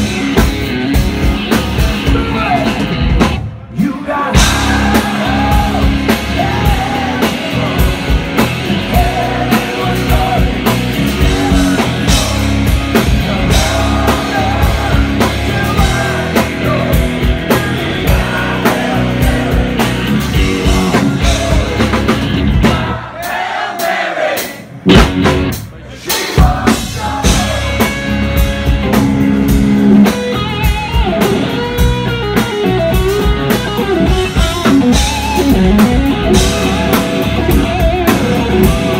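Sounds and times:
electric guitar: 0:00.0 - 0:03.7, 0:04.3 - 0:23.0, 0:26.4 - 0:38.9
bass guitar: 0:00.0 - 0:23.2, 0:24.7 - 0:38.9
man singing lead vocal: 0:00.0 - 0:24.5, 0:25.8 - 0:28.4
drums: 0:00.0 - 0:38.9.

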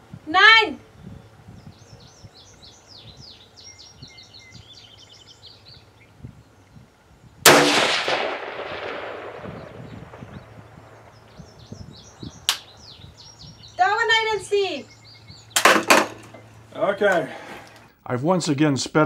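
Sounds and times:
birds chirping: 0:00.0 - 0:18.1
rifle shot with echo: 0:07.4 - 0:11.0.

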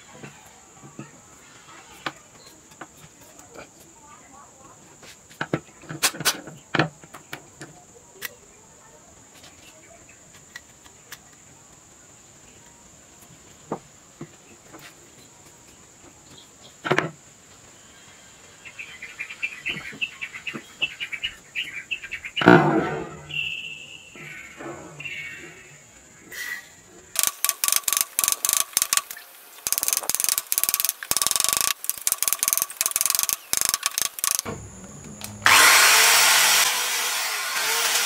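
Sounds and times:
screwdriver clicks: 0:27.2 - 0:34.5
screwdriver scratching: 0:27.2 - 0:34.5.

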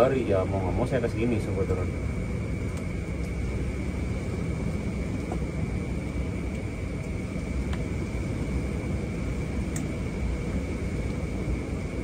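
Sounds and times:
high whine: 0:00.0 - 0:12.0.

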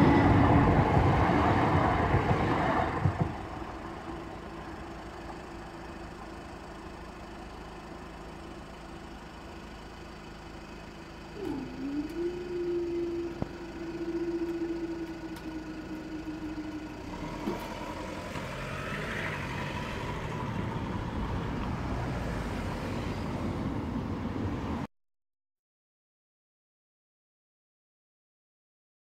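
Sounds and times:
road traffic: 0:00.0 - 0:24.9
barrier mechanism humming: 0:11.2 - 0:18.6.

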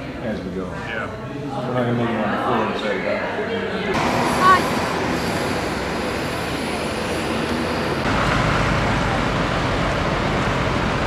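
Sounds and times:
passing vehicles: 0:04.0 - 0:11.0.

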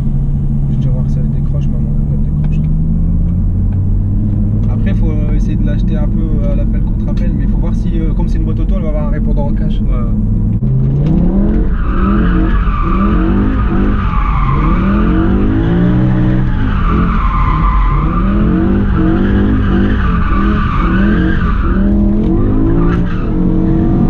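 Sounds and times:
car engine revving: 0:00.0 - 0:24.0
tyres squealing: 0:11.5 - 0:23.6.

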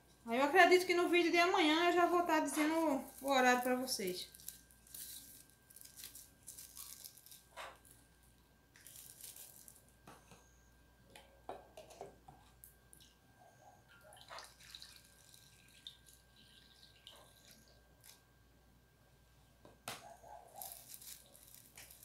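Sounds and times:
plastic bag crinkling: 0:02.2 - 0:08.0, 0:08.8 - 0:09.9, 0:20.5 - 0:22.0
liquid pouring through funnel: 0:14.1 - 0:18.1.

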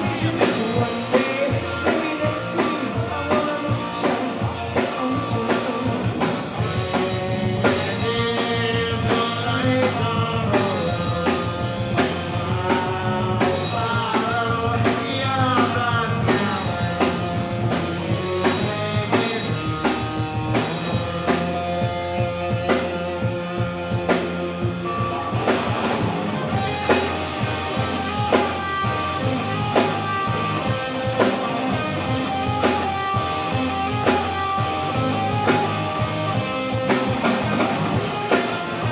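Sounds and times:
lead vocalist singing: 0:00.0 - 0:21.4
rock band playing: 0:00.0 - 0:38.9.

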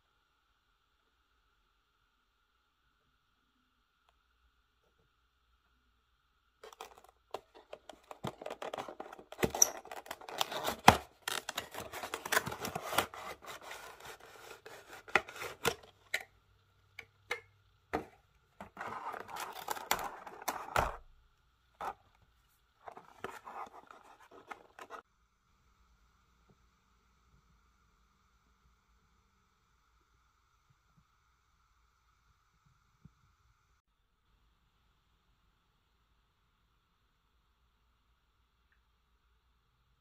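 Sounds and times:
cardboard and paper rustling: 0:06.6 - 0:16.1, 0:18.0 - 0:21.0, 0:22.8 - 0:25.0.

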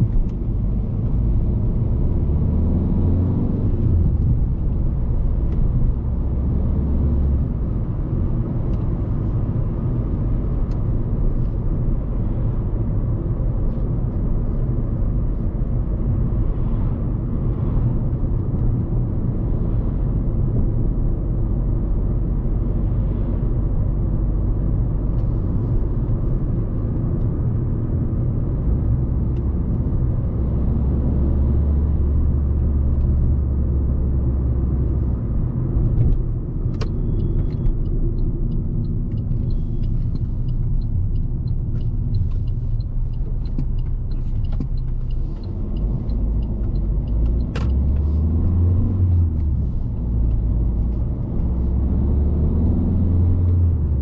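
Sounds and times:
car engine and tyre rumble: 0:00.0 - 0:54.0
turn signal ticking: 0:23.6 - 0:54.0.

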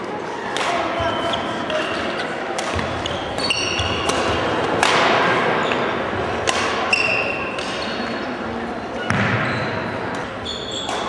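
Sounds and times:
rackets striking shuttlecock: 0:02.5 - 0:08.1.

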